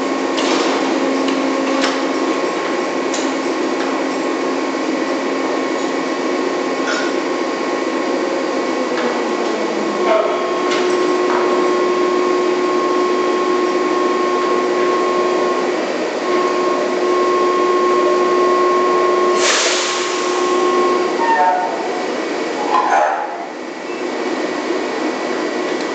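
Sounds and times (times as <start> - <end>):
drilling machinery hum and whine: 0.0 - 25.9
burst of hiss: 19.4 - 20.4.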